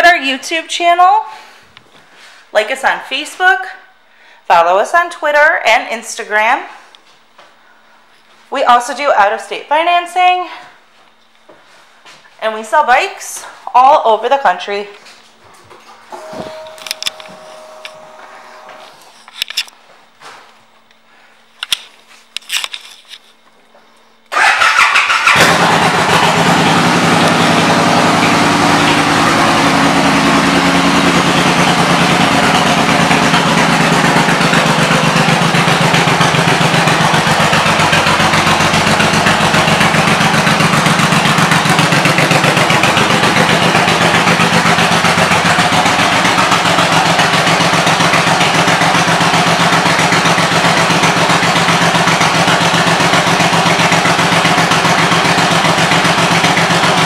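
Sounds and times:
motorcycle engine starting and idling: 15.9 - 19.0, 24.3 - 57.0.

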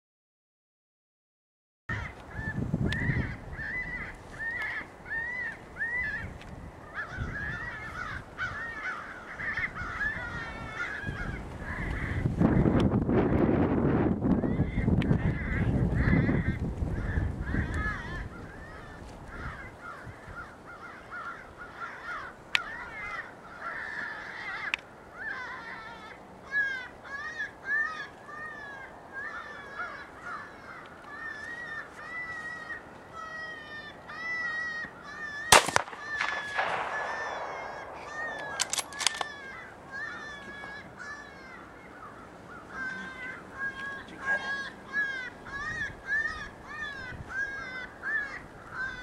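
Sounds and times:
loud gunshot with echo: 35.5 - 39.1
sharp clicks: 35.5 - 39.4.

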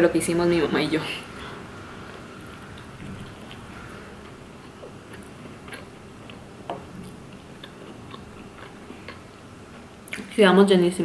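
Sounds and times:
person chewing food: 1.9 - 10.2.

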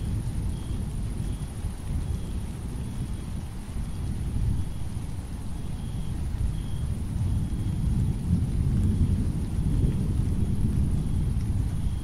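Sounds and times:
rain falling: 0.0 - 12.0
thunder rumbling: 6.9 - 12.0.

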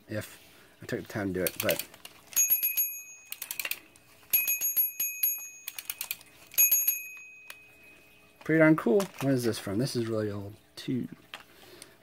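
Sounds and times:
toy fire truck bell dinging: 2.3 - 8.0.

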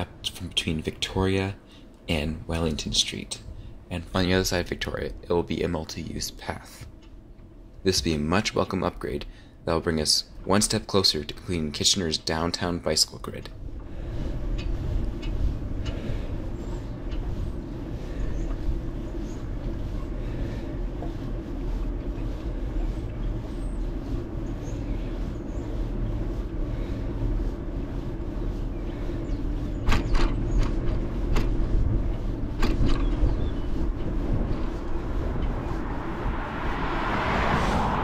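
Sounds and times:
bicycle tyres rolling on asphalt: 7.8 - 38.0
wind on microphone: 13.5 - 38.0.

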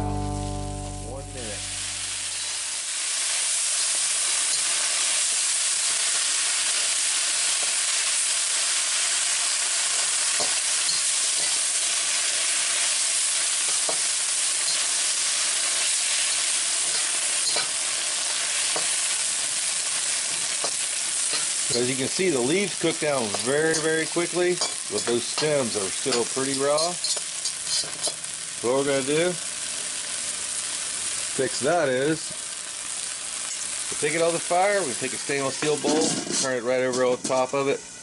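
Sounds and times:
guitar music: 0.0 - 2.6
vegetables sizzling in a wok: 0.0 - 38.0
metal spatula scraping a pan: 16.8 - 17.8, 23.2 - 28.2, 35.6 - 37.1.

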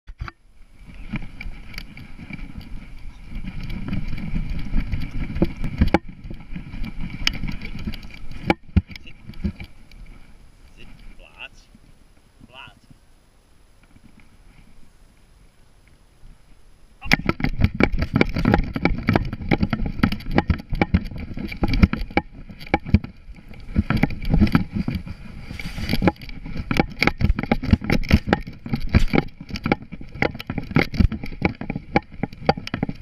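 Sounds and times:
camera knocks and thumps: 17.0 - 25.1.

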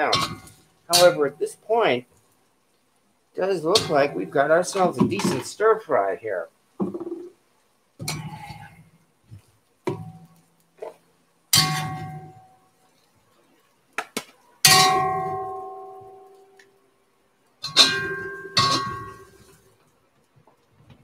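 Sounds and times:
utensil clanging on iron wok: 0.0 - 1.3, 3.7 - 5.4, 11.6 - 12.3, 14.7 - 16.1, 17.6 - 19.4.

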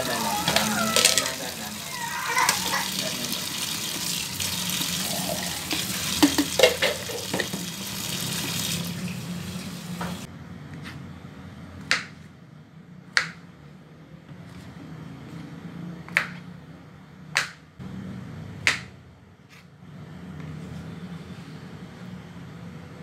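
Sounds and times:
tap water running into a sink: 0.1 - 10.3.

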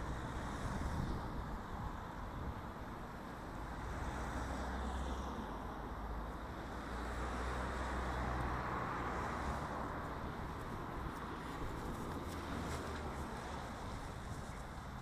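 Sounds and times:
low rumble of road traffic: 0.0 - 15.0.

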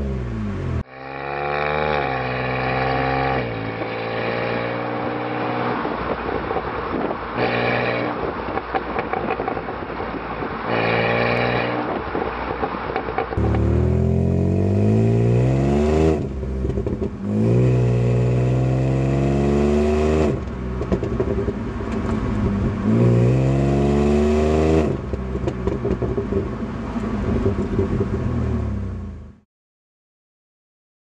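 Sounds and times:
car engine revving: 13.4 - 29.3.

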